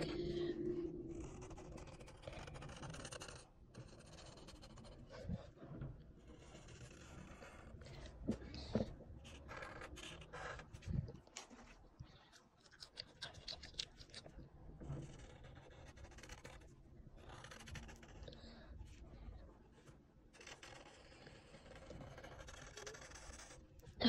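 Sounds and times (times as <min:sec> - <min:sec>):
marker scratching on paper: 0:01.2 - 0:05.5, 0:06.2 - 0:11.8, 0:15.0 - 0:18.3, 0:19.7 - 0:23.6.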